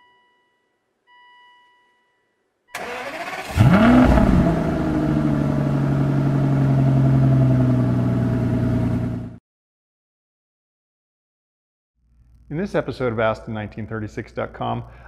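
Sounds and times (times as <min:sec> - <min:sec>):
car engine starting and idling: 0:02.8 - 0:09.4.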